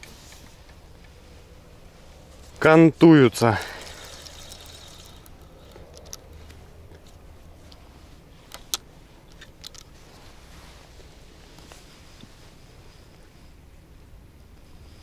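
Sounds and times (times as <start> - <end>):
fishing reel clicks: 3.5 - 6.2.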